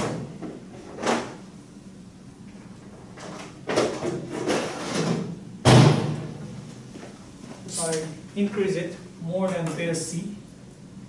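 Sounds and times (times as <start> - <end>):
loud thump: 5.6 - 6.4.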